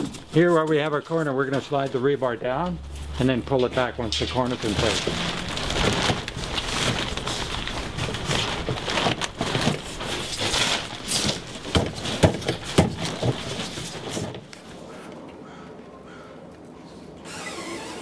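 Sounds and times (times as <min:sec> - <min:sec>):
rustling: 0:02.8 - 0:15.2.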